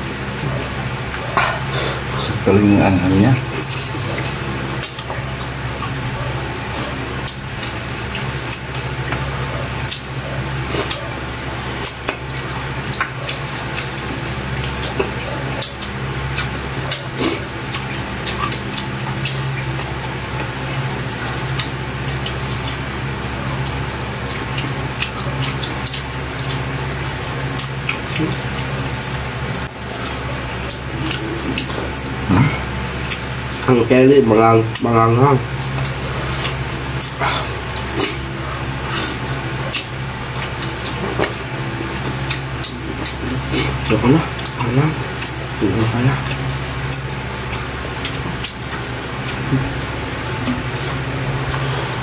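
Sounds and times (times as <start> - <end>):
steady low hum: 0.0 - 52.0
wet chewing: 0.0 - 52.0
lip smacks: 35.8 - 45.4.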